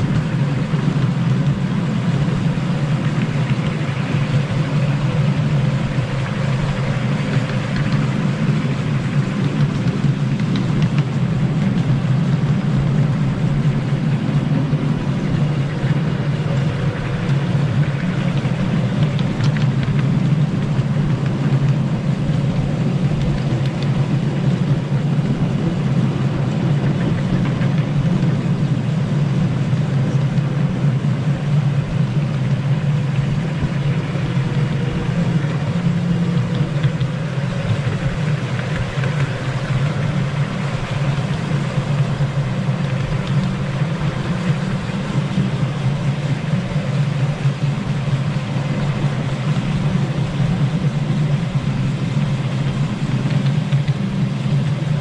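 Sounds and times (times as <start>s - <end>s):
miniature locomotive engine running: 0.0s - 55.0s.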